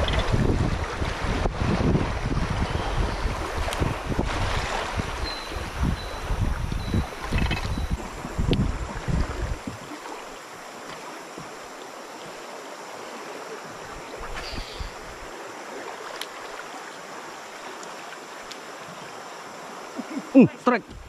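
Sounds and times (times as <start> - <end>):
wind rumble on microphone: 0.0 - 10.2, 13.7 - 15.3
river water flowing: 0.0 - 21.0.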